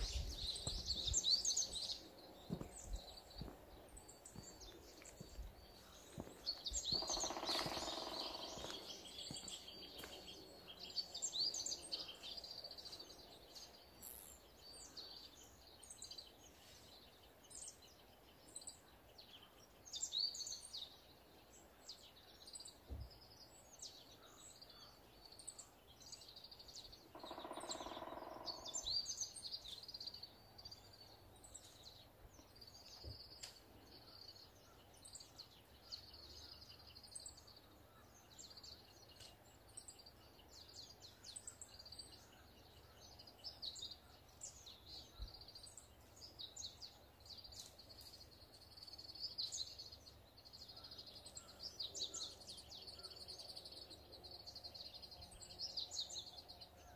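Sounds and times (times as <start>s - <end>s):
birds chirping and trilling: 0.0s - 56.9s
woodpecker calling: 4.2s - 11.0s, 27.0s - 29.4s.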